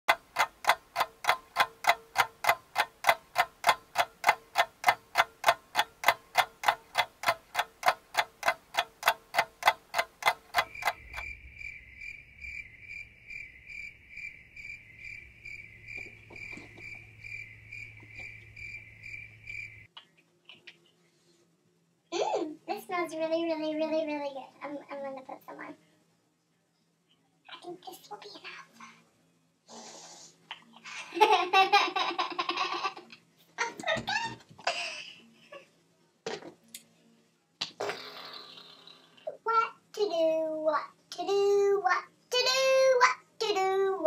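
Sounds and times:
fast ticking clock: 0:00.1 - 0:11.8
crickets chirping: 0:10.2 - 0:19.9
low hum: 0:10.9 - 0:19.9.

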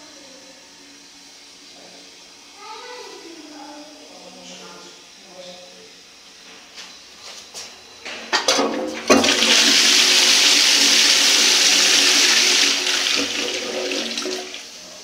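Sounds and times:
toilet flushing water rush: 0:08.6 - 0:15.0.

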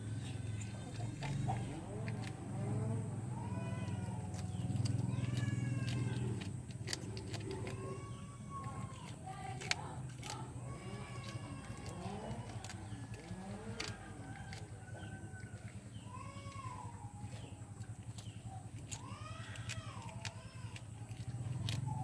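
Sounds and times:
civet growling low: 0:00.0 - 0:20.2
high-pitched animal calls: 0:00.0 - 0:22.0.

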